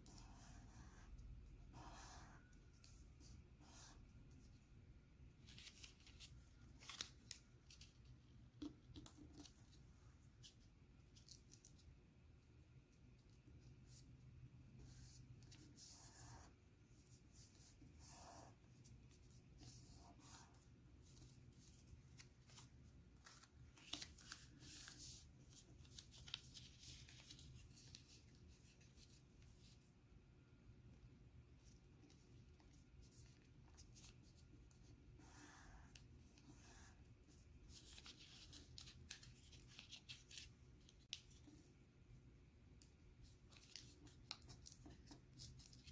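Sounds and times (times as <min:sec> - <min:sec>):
paper crinkling while folded: 0:05.4 - 0:08.2, 0:18.8 - 0:29.8, 0:31.6 - 0:41.6, 0:43.2 - 0:45.9.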